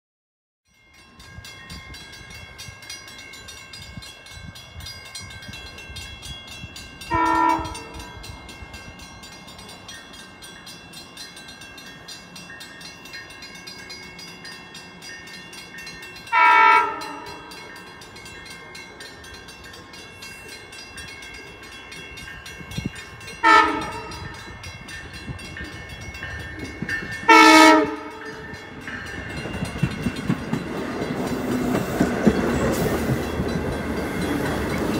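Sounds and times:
crossing bell ringing: 0:00.7 - 0:34.9
train rumble: 0:01.0 - 0:34.9
train horn blasts: 0:07.1 - 0:08.1, 0:16.3 - 0:17.5, 0:23.4 - 0:24.4, 0:27.3 - 0:28.4.

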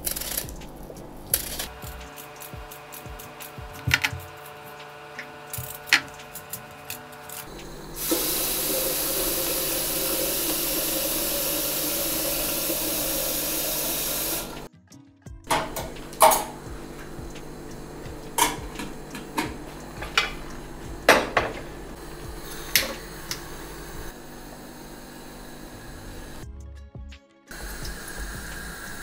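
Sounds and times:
tap running water into sink: 0:07.5 - 0:14.7, 0:15.5 - 0:24.1.

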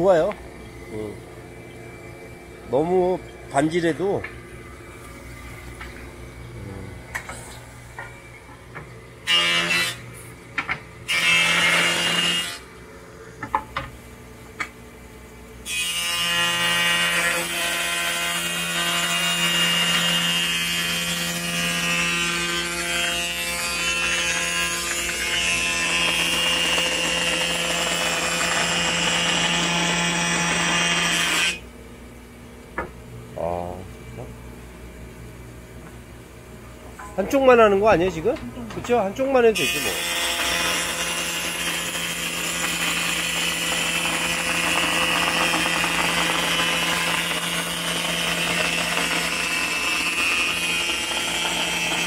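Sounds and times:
planer cutting wood: 0:09.3 - 0:10.0, 0:11.0 - 0:12.6, 0:15.7 - 0:31.6, 0:39.6 - 0:52.0
jointer-planer humming: 0:15.8 - 0:31.6, 0:39.6 - 0:52.0.

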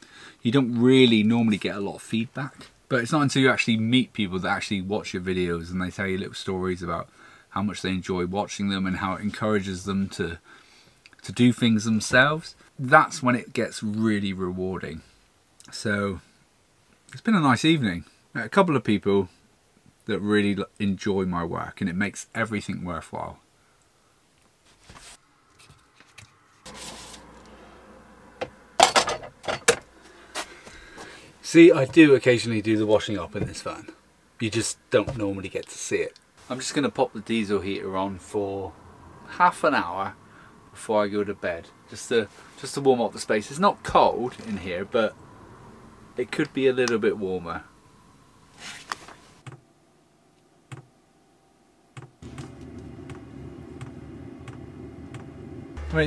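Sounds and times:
heater fan humming: 0:31.0 - 0:56.0.

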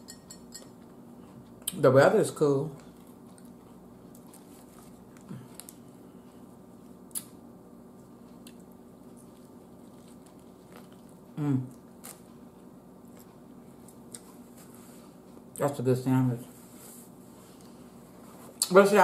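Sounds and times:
person chewing food: 0:02.7 - 0:15.6
person humming mm: 0:11.4 - 0:11.7.

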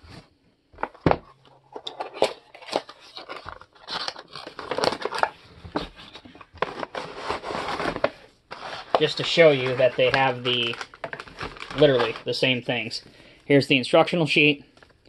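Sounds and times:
knocks and clicks of packaging: 0:00.8 - 0:09.4, 0:10.0 - 0:12.2
plastic crinkling against cardboard: 0:00.8 - 0:13.0.

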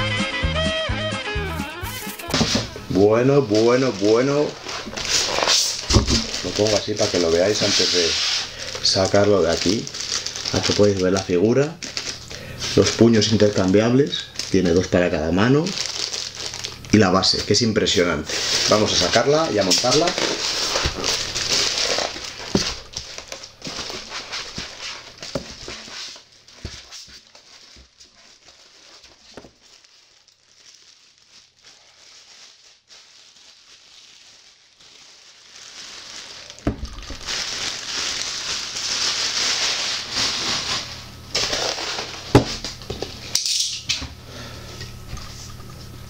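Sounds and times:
plastic wrapping crinkling: 0:01.6 - 0:44.5.

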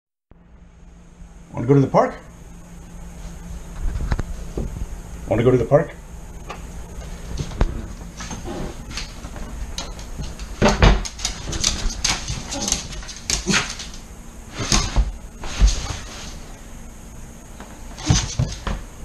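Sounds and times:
dog claws clicking on wood floor: 0:09.0 - 0:14.0.

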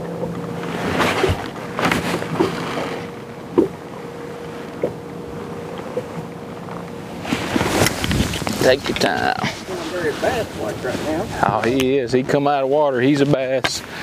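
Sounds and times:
steady low hum: 0:00.0 - 0:14.0
wind-like noise: 0:07.0 - 0:11.6.

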